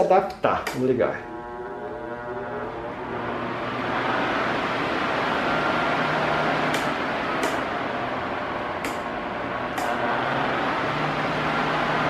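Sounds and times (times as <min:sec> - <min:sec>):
faint motor hum: 0:00.0 - 0:12.0
fan air rushing: 0:00.0 - 0:12.0.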